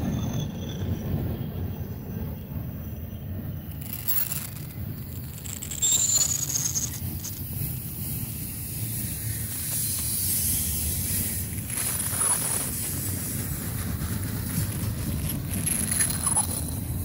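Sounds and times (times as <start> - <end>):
freight train rolling rumble: 0.0 - 17.0
high squeals falling in pitch: 5.6 - 7.0.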